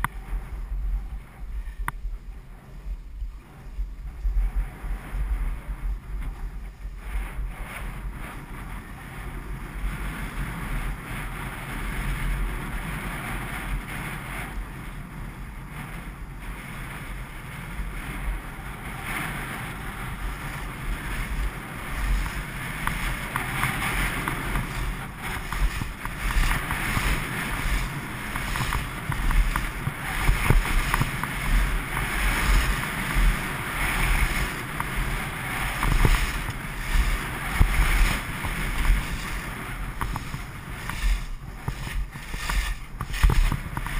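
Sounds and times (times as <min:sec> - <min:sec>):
skis sliding on packed snow: 0:00.0 - 0:43.9
wind buffeting microphone: 0:00.0 - 0:43.9.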